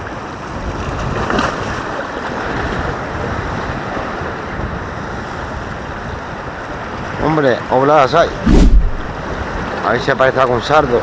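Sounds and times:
wind on microphone: 0:08.3 - 0:09.7.

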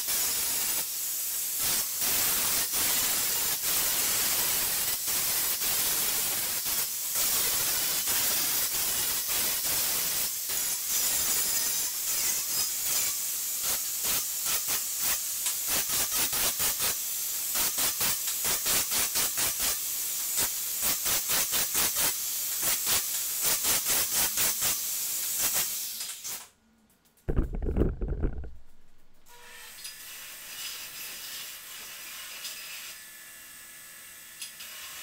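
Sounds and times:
loud low rumble: 0:27.3 - 0:29.2.

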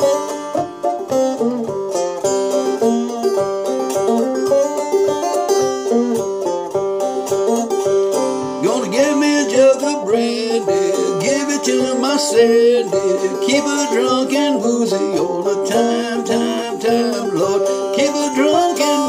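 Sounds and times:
banjo plucked notes: 0:00.0 - 0:19.0
man's voice: 0:08.6 - 0:19.0.

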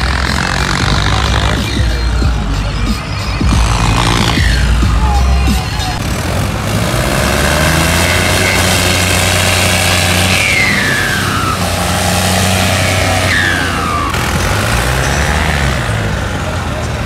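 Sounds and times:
tractor diesel engine under load: 0:00.0 - 0:17.0
high falling whines: 0:07.0 - 0:15.9.

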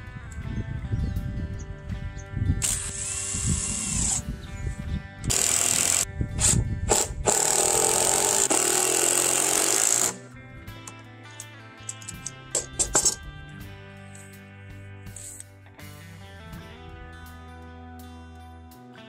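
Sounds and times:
background music: 0:00.0 - 0:19.0
cordless drill driving screws: 0:02.6 - 0:04.2, 0:05.3 - 0:10.2.

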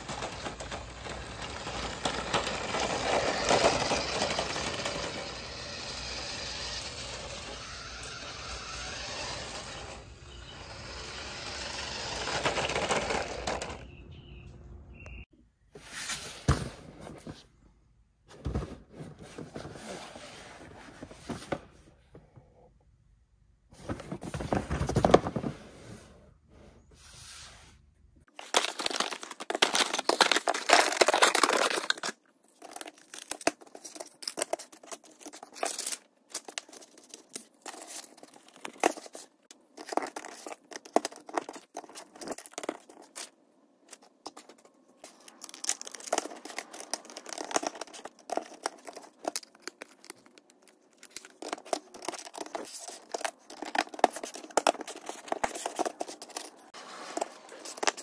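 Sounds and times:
plastic toy pieces clicking: 0:00.0 - 0:10.0, 0:10.6 - 0:13.8, 0:44.3 - 0:56.6
toy truck rumbling over pavers: 0:00.0 - 0:14.0
cardboard box opened: 0:23.8 - 0:25.7, 0:28.4 - 0:43.3, 0:43.9 - 0:58.0
packaging tearing and crinkling: 0:28.3 - 0:43.3, 0:43.9 - 0:58.0.

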